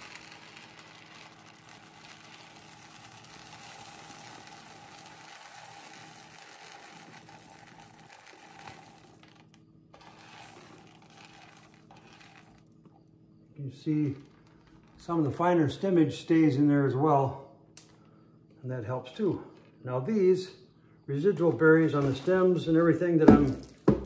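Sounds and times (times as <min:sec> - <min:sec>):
berries pattering into plastic bag: 0:00.0 - 0:12.7, 0:21.8 - 0:24.0.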